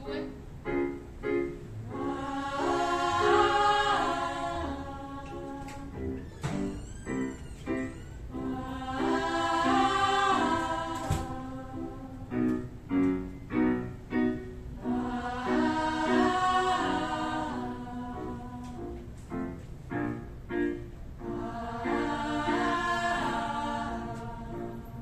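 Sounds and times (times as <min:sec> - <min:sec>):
women singing vocal exercise: 0:01.9 - 0:06.2, 0:08.4 - 0:12.4, 0:14.8 - 0:19.0, 0:21.2 - 0:25.0.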